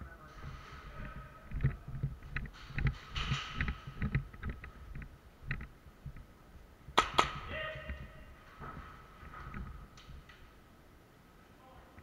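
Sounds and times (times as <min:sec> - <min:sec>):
airsoft pistol shots: 0:07.0 - 0:07.4.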